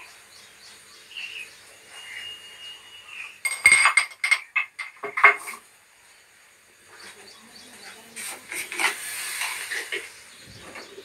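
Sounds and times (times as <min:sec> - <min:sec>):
metal kitchen vessels clanking: 0:03.4 - 0:05.6
utensils knocking on a shelf: 0:03.5 - 0:05.6.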